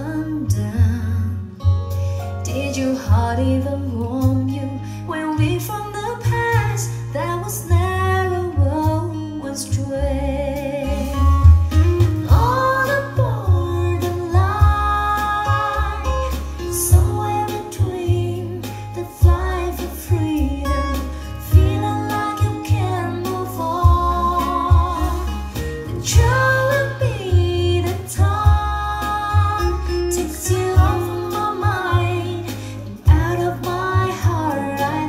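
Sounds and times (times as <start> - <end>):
guitar: 0.0 - 35.0
heavy bass line: 9.8 - 35.0
person singing: 12.2 - 35.0.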